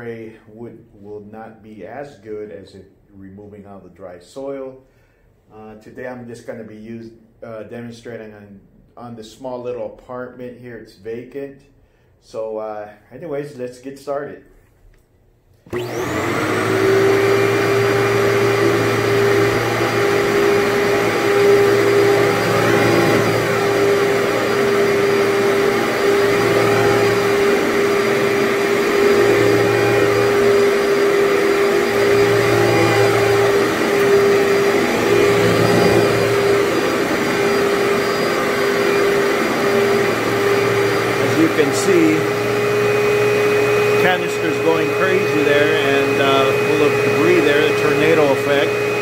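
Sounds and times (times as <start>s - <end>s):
vacuum cleaner whining: 15.6s - 49.0s.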